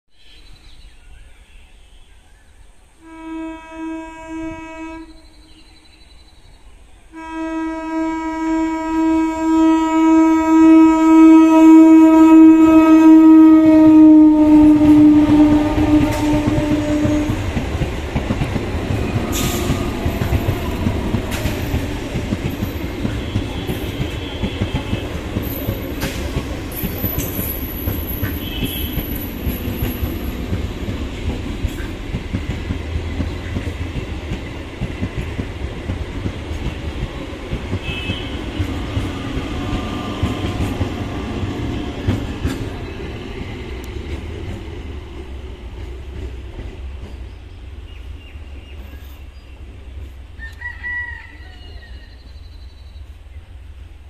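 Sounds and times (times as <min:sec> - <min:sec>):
train horn: 0:03.0 - 0:05.6, 0:07.1 - 0:17.8, 0:18.8 - 0:30.3, 0:37.7 - 0:42.8
train coaches clattering over rails: 0:15.0 - 0:47.8.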